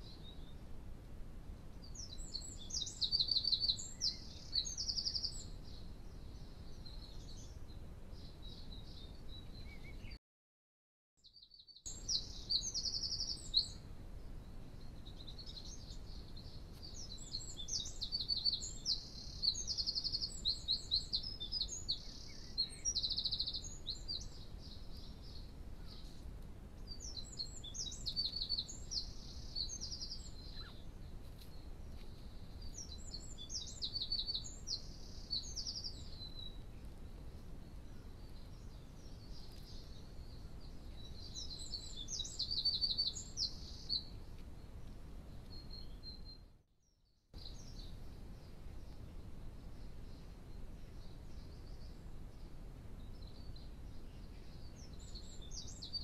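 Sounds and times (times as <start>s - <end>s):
faint low background noise: 0.0s - 10.2s, 11.2s - 56.0s
songbird singing trills: 1.7s - 10.2s, 11.2s - 26.2s, 26.8s - 46.5s, 47.4s - 56.0s.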